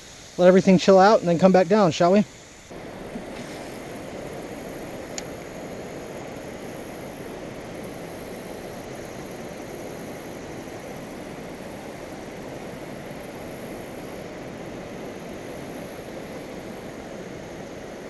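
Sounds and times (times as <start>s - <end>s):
faint tick: 5.1s - 5.3s.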